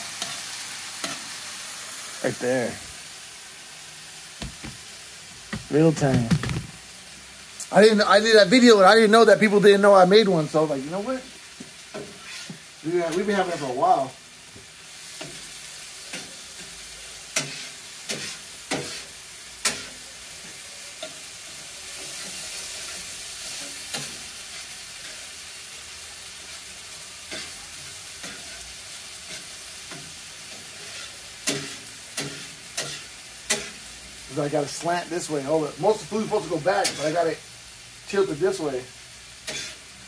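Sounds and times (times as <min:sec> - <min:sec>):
meat sizzling on a griddle: 0:00.0 - 0:40.0
metal spatula scraping griddle: 0:11.9 - 0:13.9, 0:16.1 - 0:21.3, 0:27.3 - 0:33.9, 0:35.9 - 0:37.3, 0:39.4 - 0:40.0.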